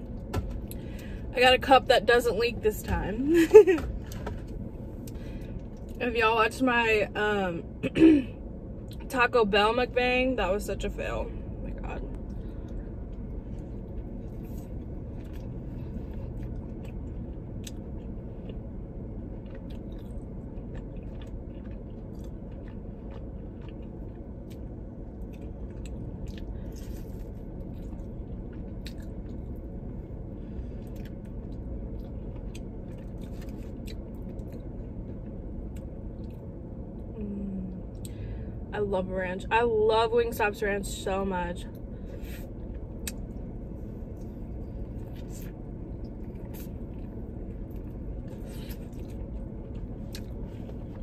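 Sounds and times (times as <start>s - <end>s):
low rumble: 0.0s - 51.0s
chewing and biting: 12.2s - 29.9s, 30.7s - 36.5s, 44.1s - 51.0s.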